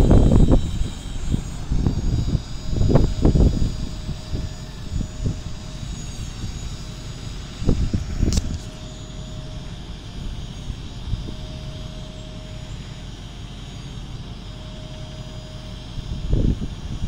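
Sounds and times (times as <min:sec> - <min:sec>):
low rumble: 0:00.0 - 0:13.7
faint whine: 0:00.0 - 0:17.0
truck engine and hydraulic droning: 0:00.0 - 0:17.0.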